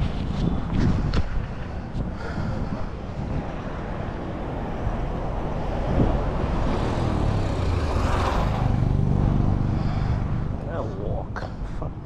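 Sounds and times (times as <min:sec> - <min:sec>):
road noise: 0:00.0 - 0:12.0
wind rumble on microphone: 0:00.0 - 0:12.0
motorcycle engine approaching: 0:06.0 - 0:10.7.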